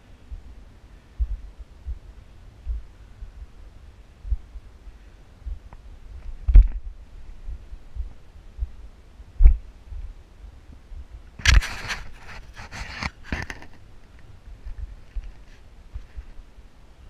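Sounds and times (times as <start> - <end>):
low thump: 5.4 - 8.8
scraping and rustling on sandstone: 11.4 - 13.8.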